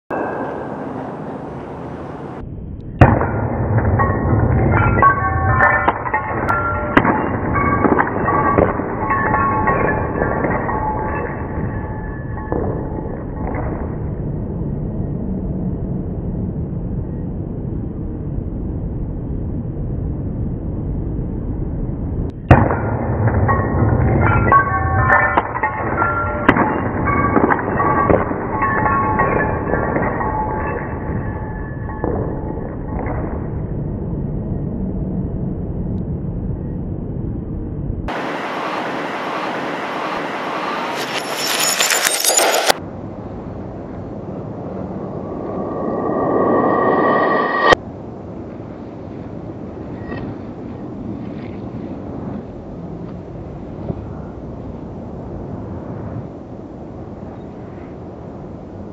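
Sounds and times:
low rumbling drone: 0.1 - 38.8, 42.9 - 48.4
loud hit: 2.9 - 9.0.

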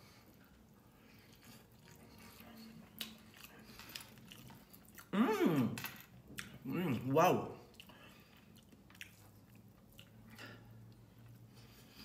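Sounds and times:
person chewing food: 0.0 - 5.2, 7.6 - 12.0.

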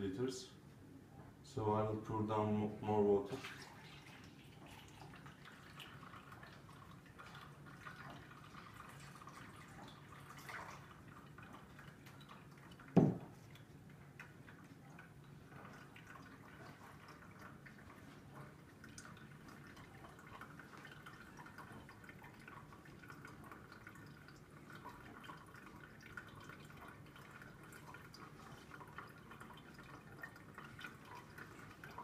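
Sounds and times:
water trickling down a tube: 2.0 - 32.0.

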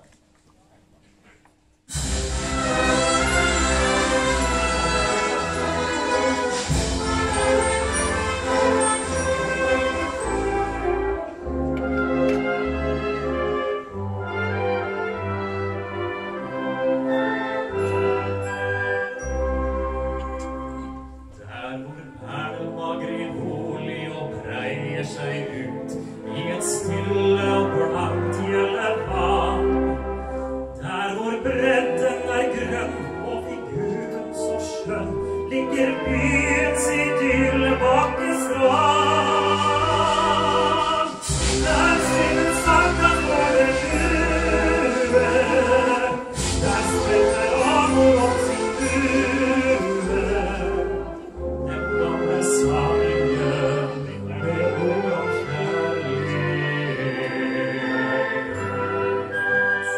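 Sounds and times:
orchestra playing: 1.9 - 59.9
man singing: 21.4 - 30.1, 30.8 - 58.4.

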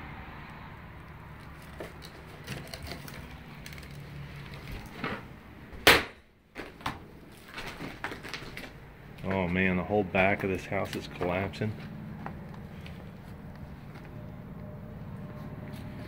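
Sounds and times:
wood cracking: 1.4 - 9.6
footsteps crunching over debris: 6.5 - 14.1.

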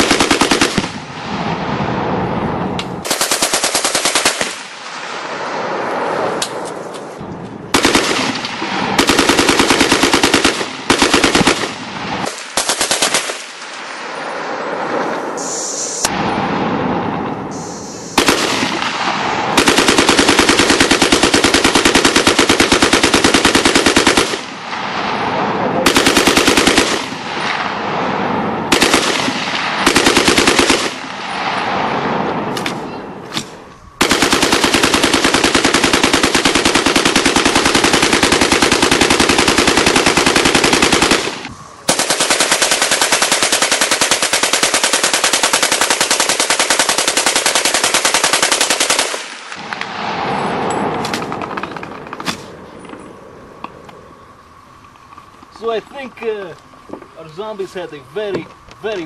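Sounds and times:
machine gun automatic fire: 0.0 - 1.0, 3.0 - 4.7, 7.7 - 13.6, 18.2 - 24.6, 25.8 - 27.4, 28.7 - 31.1, 33.4 - 49.4, 51.0 - 52.4.

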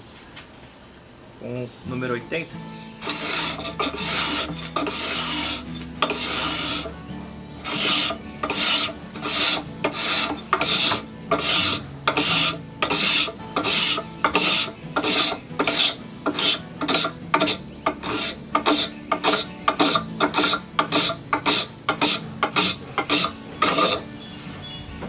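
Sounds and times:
cabinet scraper scraping wood: 3.0 - 7.0, 7.6 - 24.1.

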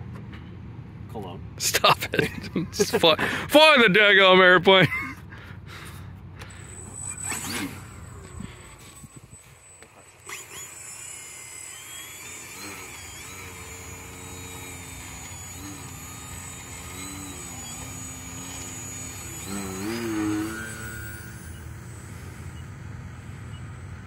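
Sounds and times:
electric model airplane motor whining: 5.8 - 24.0.

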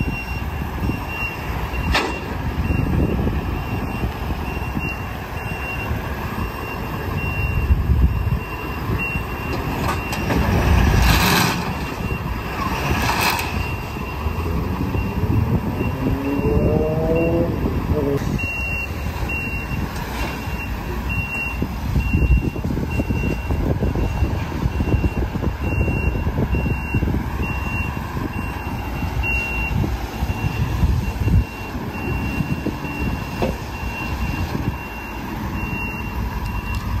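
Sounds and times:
truck backup alarm beeping: 0.0 - 37.0
truck engine rumble: 0.0 - 37.0.

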